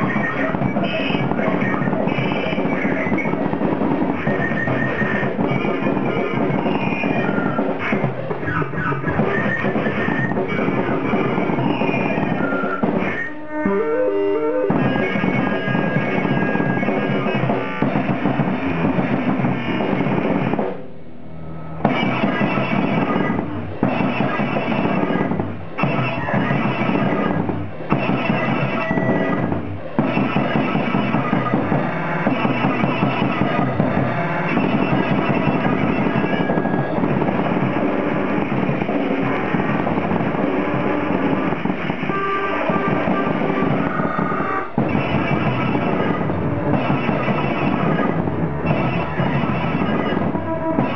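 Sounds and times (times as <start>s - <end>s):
keyboard tones: 0.0s - 20.6s
fast drumming: 0.0s - 20.9s, 21.7s - 50.9s.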